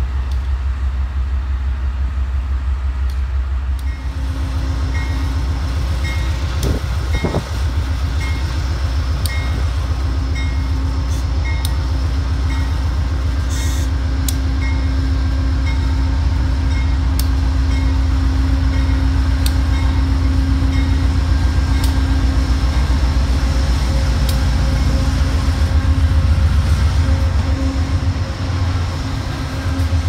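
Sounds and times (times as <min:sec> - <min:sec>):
diesel locomotive engine rumbling: 0:00.0 - 0:30.0.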